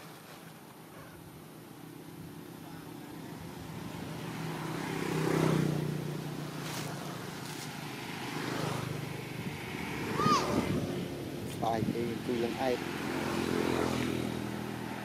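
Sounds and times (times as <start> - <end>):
vehicle engine passing by: 3.0 - 15.0.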